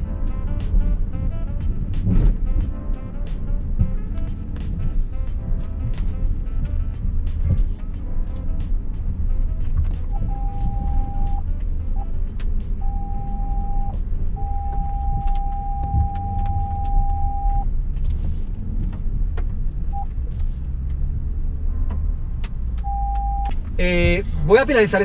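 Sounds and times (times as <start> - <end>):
vehicle engine low rumble: 0.0 - 25.0
electronic warning tone: 10.1 - 11.4, 12.8 - 17.7, 22.8 - 23.5.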